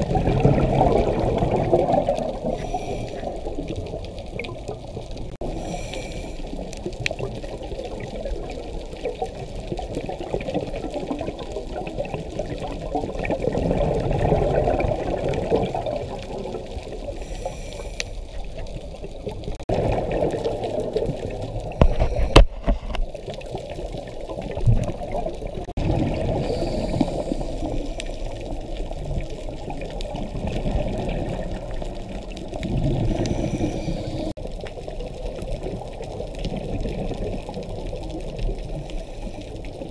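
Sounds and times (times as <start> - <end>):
muffled bubbling exhalations: 0.0 - 4.0, 19.6 - 23.5, 24.3 - 34.4
watery wash: 0.0 - 39.9.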